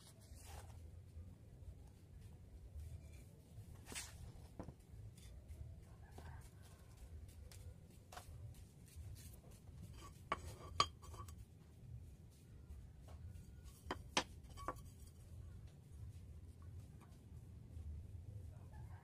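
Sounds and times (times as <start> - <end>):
faint low hum: 10.6 - 19.0.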